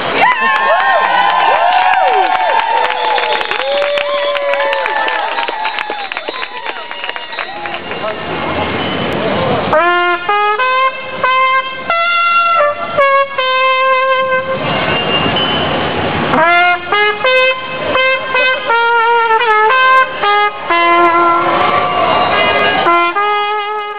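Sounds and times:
trumpet playing held notes: 0:09.7 - 0:15.2, 0:16.3 - 0:23.9.

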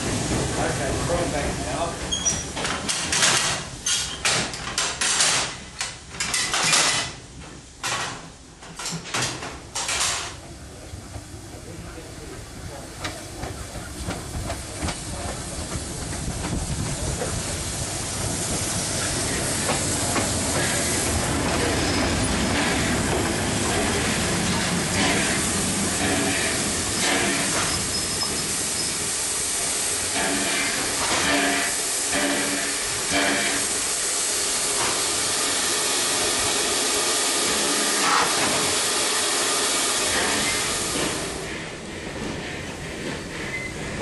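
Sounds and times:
steam hissing: 0:11.6 - 0:44.0.

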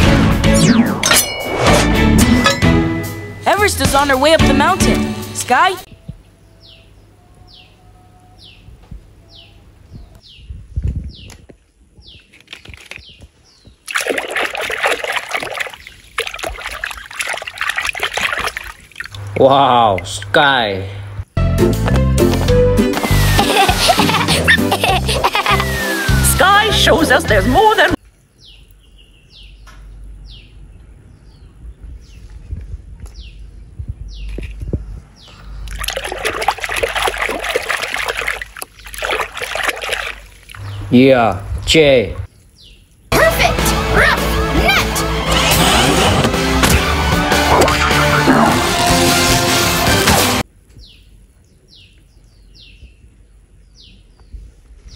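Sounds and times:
hand splashing through water: 0:13.8 - 0:19.2, 0:35.7 - 0:40.6.

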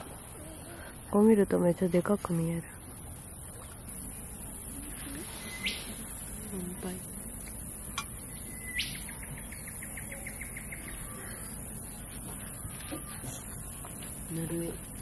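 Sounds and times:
bird whistling call: 0:05.3 - 0:06.0, 0:08.3 - 0:11.6.

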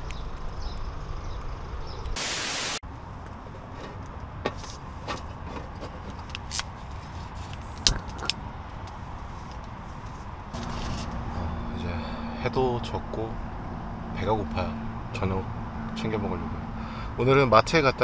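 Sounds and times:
loud burst of hiss: 0:02.2 - 0:02.8
outdoor low rumble: 0:10.4 - 0:17.6.

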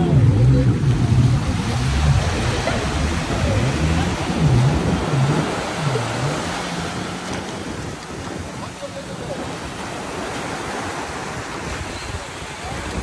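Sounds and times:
low wavering hum: 0:00.0 - 0:07.8
sea surf washing on beach: 0:00.0 - 0:13.0
wind noise on microphone: 0:00.0 - 0:13.0.

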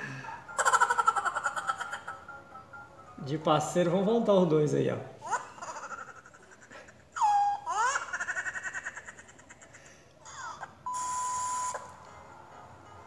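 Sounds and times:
high-pitched comic laughter: 0:00.6 - 0:02.3, 0:05.2 - 0:10.8
steady beep: 0:10.9 - 0:11.9.

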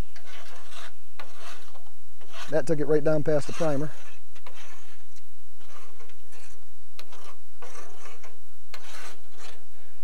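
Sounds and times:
paint scraper scraping metal: 0:00.2 - 0:09.6.

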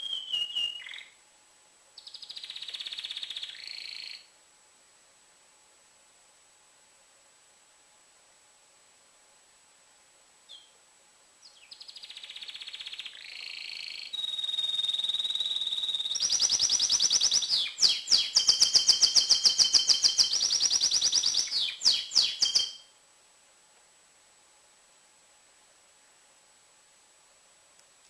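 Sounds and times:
canary chirp: 0:00.0 - 0:01.2, 0:02.0 - 0:04.3, 0:10.5 - 0:10.8, 0:11.4 - 0:22.9
canary song with trills: 0:00.0 - 0:01.2, 0:02.0 - 0:04.3, 0:10.5 - 0:10.8, 0:11.4 - 0:22.9.

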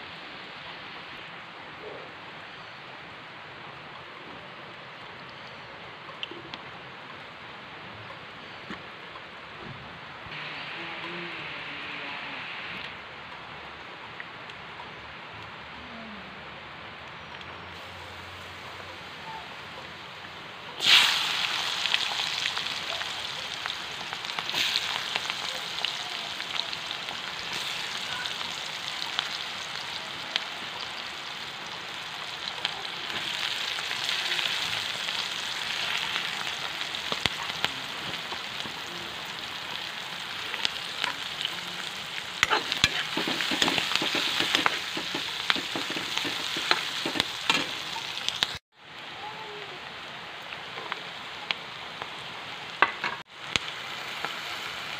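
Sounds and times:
vegetables sizzling in oil: 0:10.3 - 0:12.9, 0:17.7 - 0:48.6, 0:52.7 - 0:54.9
spoon scraping pan: 0:42.4 - 0:48.0.

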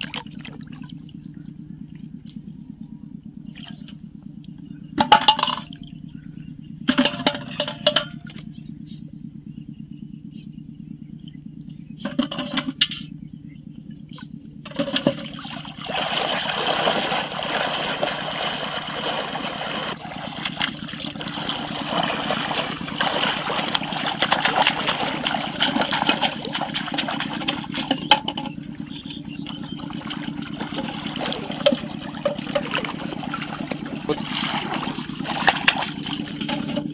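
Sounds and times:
steady low hum: 0:00.0 - 0:36.9
water splashing and rushing: 0:14.8 - 0:36.9.

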